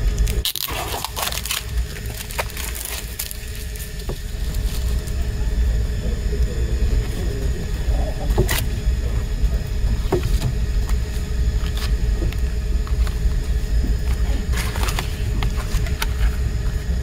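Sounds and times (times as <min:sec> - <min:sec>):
plastic wrap crinkling: 0:00.1 - 0:05.4, 0:09.9 - 0:16.4
low rumble: 0:01.1 - 0:17.0.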